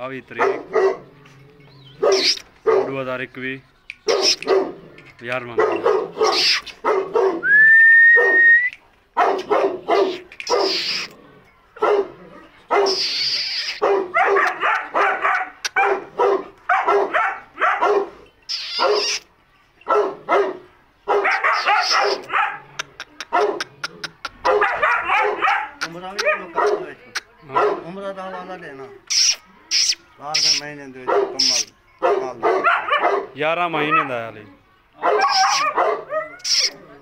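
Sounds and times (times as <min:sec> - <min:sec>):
dog barking: 0:00.4 - 0:01.1, 0:02.0 - 0:03.0, 0:04.1 - 0:04.8, 0:05.6 - 0:07.5, 0:08.2 - 0:08.4, 0:09.2 - 0:10.7, 0:11.8 - 0:13.0, 0:13.8 - 0:18.2, 0:18.8 - 0:19.1, 0:19.9 - 0:23.7, 0:24.4 - 0:28.5, 0:31.1 - 0:34.2, 0:35.0 - 0:36.5
loud high whistle: 0:07.4 - 0:08.8.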